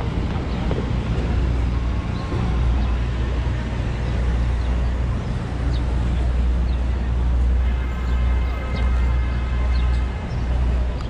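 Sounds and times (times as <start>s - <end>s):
city traffic rumble: 0.0s - 11.0s.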